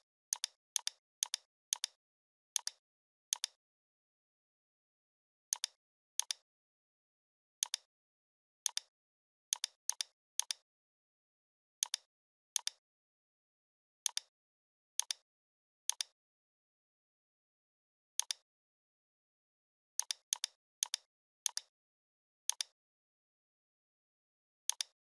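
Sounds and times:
computer mouse clicks: 0.3s - 2.0s, 2.6s - 3.6s, 5.5s - 6.4s, 7.6s - 7.9s, 8.6s - 8.9s, 9.5s - 10.6s, 11.8s - 12.8s, 14.0s - 14.3s, 15.0s - 15.2s, 15.9s - 16.2s, 18.2s - 18.4s, 20.0s - 21.7s, 22.5s - 22.8s, 24.7s - 25.0s.

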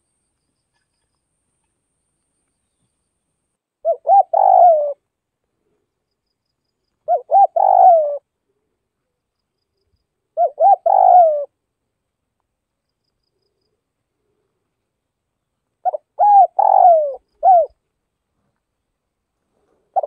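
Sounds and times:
dove cooing: 3.8s - 5.0s, 7.1s - 8.3s, 10.4s - 11.6s, 15.8s - 17.8s.

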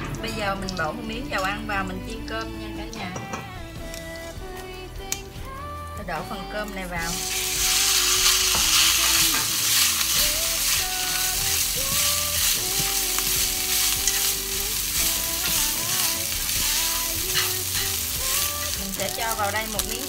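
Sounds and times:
rice sizzling in hot oil: 7.0s - 20.0s
chopsticks tapping pan: 8.3s - 20.0s.

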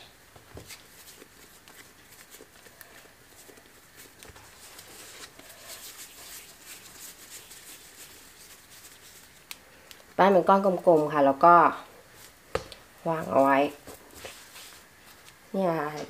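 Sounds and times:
hands tapping bread dough: 12.5s - 12.8s.

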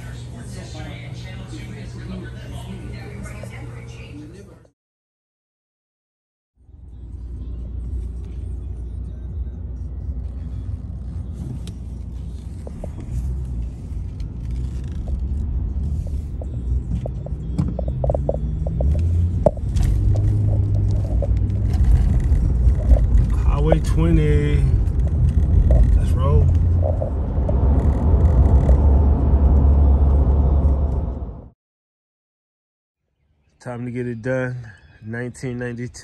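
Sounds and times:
car engine and road noise: 6.6s - 31.6s.

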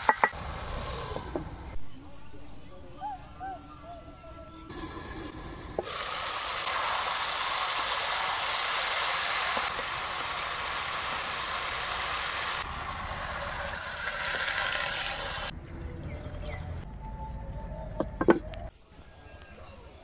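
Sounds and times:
beans sizzling in hot oil: 4.7s - 15.5s.

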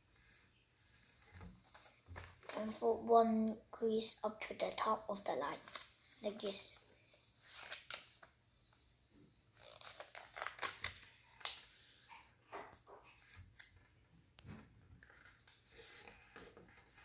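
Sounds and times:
paper rustling and crinkling: 1.0s - 2.8s, 5.6s - 6.8s, 7.4s - 8.3s, 9.6s - 14.0s, 15.0s - 17.0s
paper snaps and taps: 11.4s - 11.6s.

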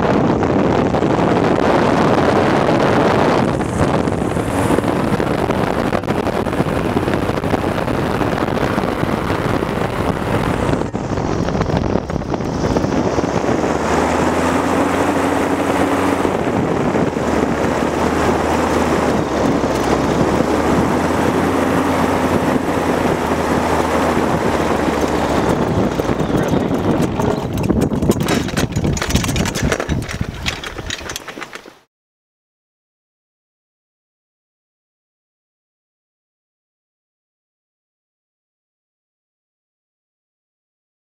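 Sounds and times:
engine and propeller running: 0.0s - 31.9s
wind noise on microphone: 0.0s - 31.9s.

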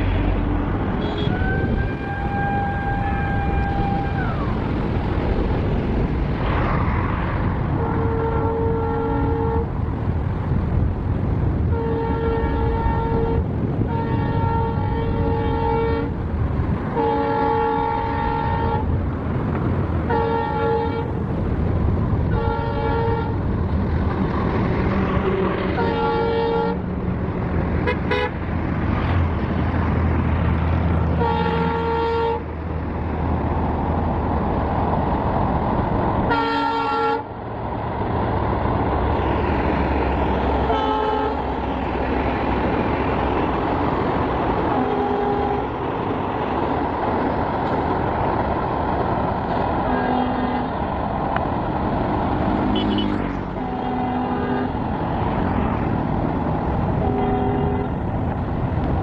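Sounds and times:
train rumbling: 0.0s - 59.0s
locomotive horn blasts: 0.9s - 4.3s, 7.7s - 9.8s, 11.7s - 16.2s, 16.9s - 19.0s, 20.0s - 21.2s, 22.2s - 23.4s, 25.1s - 26.9s, 27.8s - 28.4s, 31.0s - 32.5s, 36.2s - 37.3s, 40.6s - 41.8s, 44.7s - 45.8s, 49.8s - 50.8s, 52.6s - 54.9s, 57.0s - 58.0s.

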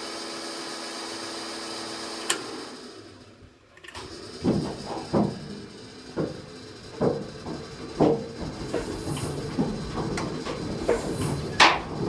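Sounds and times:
diesel engine cranking: 2.1s - 12.0s
fuel pump humming: 2.1s - 12.0s.

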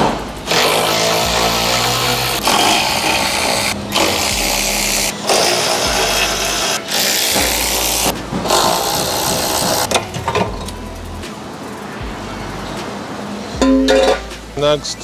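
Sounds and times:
cordless ratchet running: 0.4s - 10.0s.

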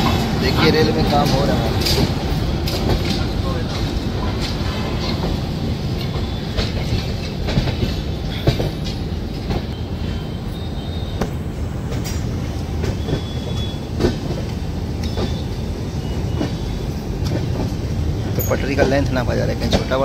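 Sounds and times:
wheels clanking over rail joints: 0.0s - 10.3s, 11.2s - 20.0s
train wheels rumbling on rails: 0.0s - 20.0s.

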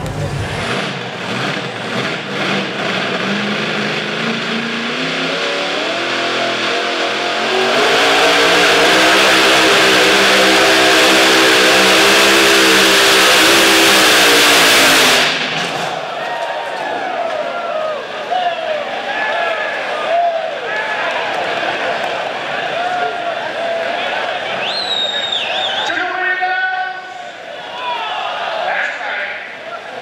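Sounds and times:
tractor engine at full throttle: 0.0s - 16.0s.

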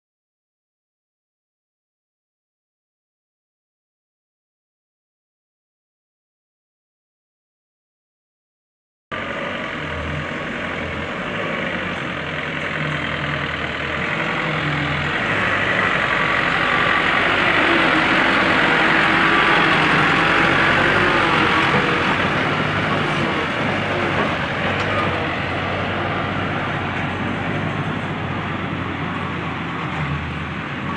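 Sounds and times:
truck engine running: 9.1s - 30.9s.

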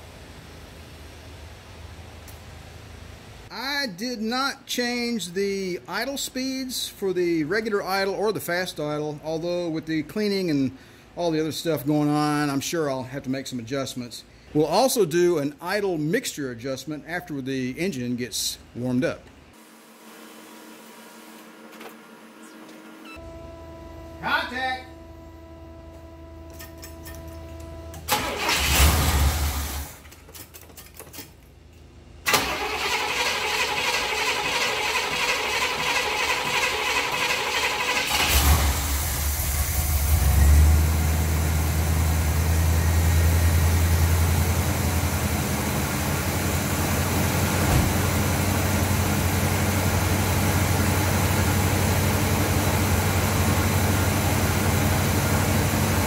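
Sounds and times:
starter motor cranking: 32.3s - 39.4s.

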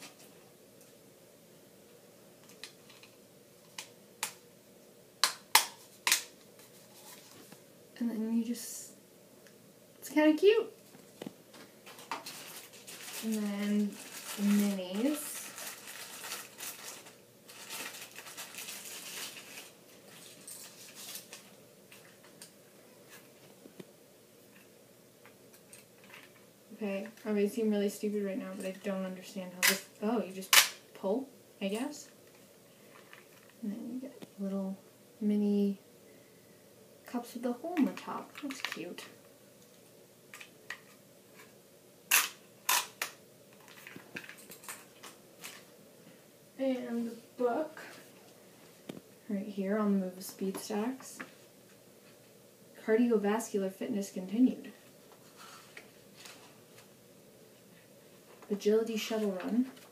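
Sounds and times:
plastic packaging crinkling: 11.0s - 22.4s.

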